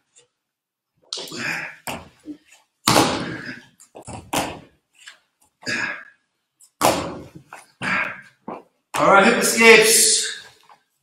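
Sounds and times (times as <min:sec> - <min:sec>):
hard breathing: 0:07.6 - 0:08.5.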